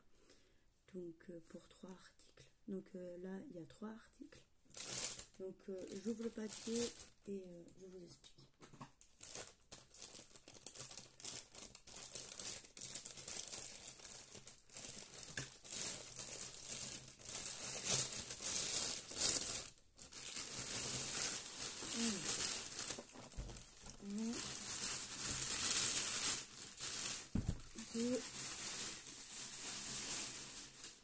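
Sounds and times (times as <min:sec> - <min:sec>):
plastic mailing bag crinkling: 0:04.7 - 0:07.2, 0:09.2 - 0:31.0.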